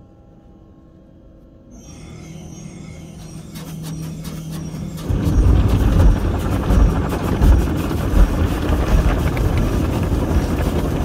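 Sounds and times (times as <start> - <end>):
water jets spraying car: 4.6 - 11.0
water drumming on car body: 5.4 - 11.0.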